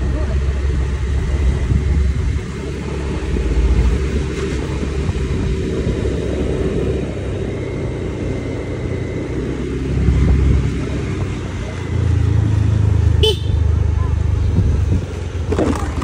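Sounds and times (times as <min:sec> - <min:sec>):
vehicle engine and tyres rumbling: 0:00.0 - 0:16.0.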